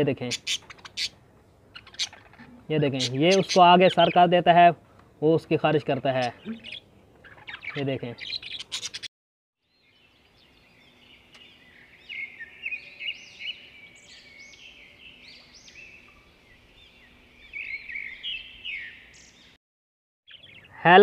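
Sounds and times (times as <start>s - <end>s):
small birds chirping: 0.0s - 19.6s, 20.3s - 21.0s.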